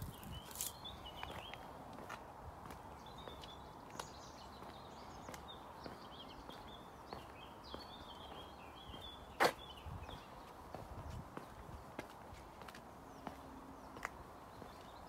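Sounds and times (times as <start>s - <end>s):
birds singing and chirping: 0.0s - 1.7s, 3.0s - 12.0s
footsteps on tarmac: 0.0s - 15.0s.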